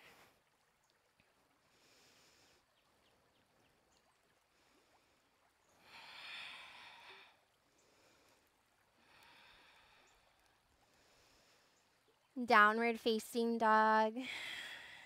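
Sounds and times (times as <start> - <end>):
person breathing: 5.8 - 11.9, 14.2 - 15.0.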